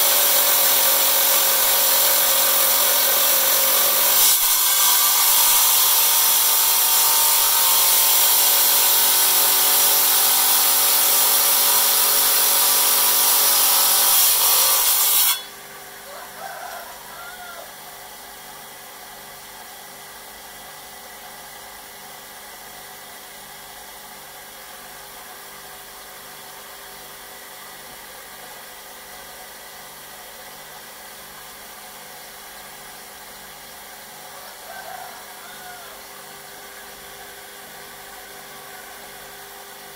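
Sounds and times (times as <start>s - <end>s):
stone saw grinding through stone: 0.0s - 15.6s
saw humming freely: 0.0s - 18.0s.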